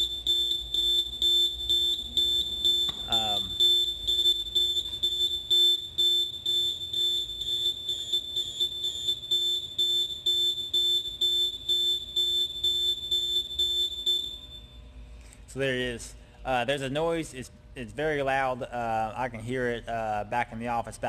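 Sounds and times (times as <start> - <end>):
electronic alarm beeping: 0.0 - 14.8.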